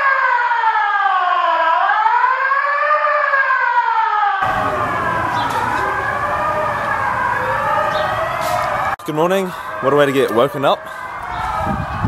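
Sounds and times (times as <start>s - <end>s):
fire alarm wailing: 0.0s - 12.0s
rush of background noise: 4.4s - 9.0s.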